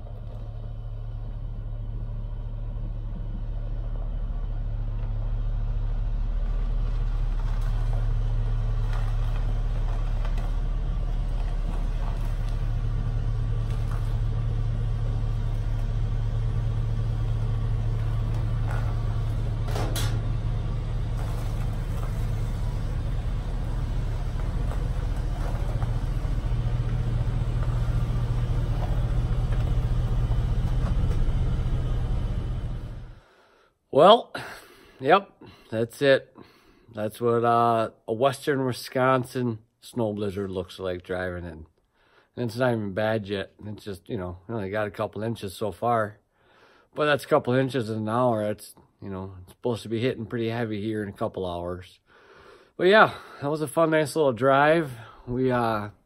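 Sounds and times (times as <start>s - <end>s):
car engine rumble: 0.0s - 33.4s.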